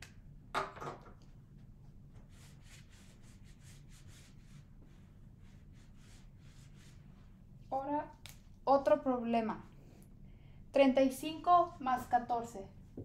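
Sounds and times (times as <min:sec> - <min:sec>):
eraser wiping whiteboard: 0:02.2 - 0:07.3, 0:11.3 - 0:12.3.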